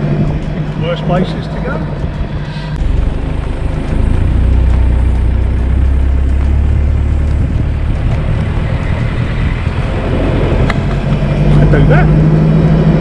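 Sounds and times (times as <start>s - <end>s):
car engine running: 0.0s - 13.0s
heavy low rumble: 0.0s - 13.0s
wind noise: 0.0s - 13.0s.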